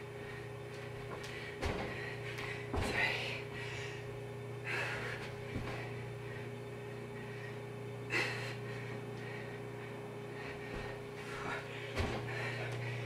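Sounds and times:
steady low hum: 0.0s - 13.0s
woman breathing hard: 0.0s - 13.0s
thuds of hands and feet on carpet: 1.0s - 3.2s, 5.2s - 6.0s, 10.6s - 12.8s.

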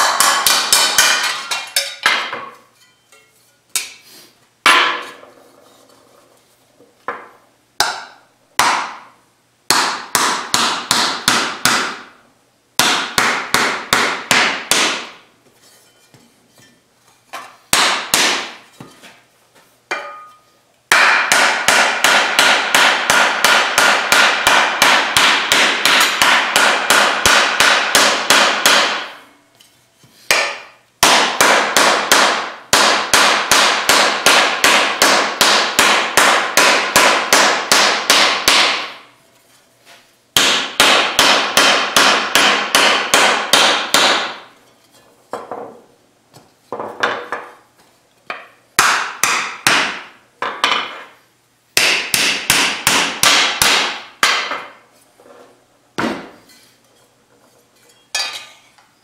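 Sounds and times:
mallet beating steel sheet: 0.0s - 2.6s, 7.8s - 9.1s, 9.7s - 12.1s, 12.8s - 15.3s, 17.7s - 18.7s, 19.9s - 29.3s, 30.3s - 39.1s, 40.4s - 44.6s, 48.8s - 50.9s, 51.8s - 54.8s.

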